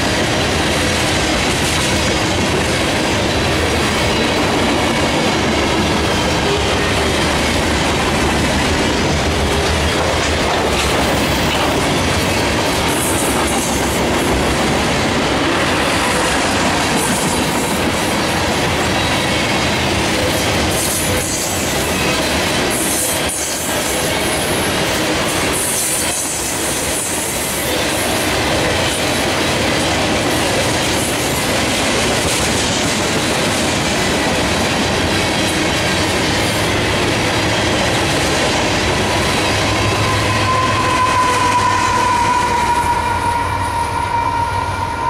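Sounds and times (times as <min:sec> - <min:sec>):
train wheels clattering over rail joints: 0:00.0 - 0:39.8
sustained high tone: 0:39.0 - 0:45.0.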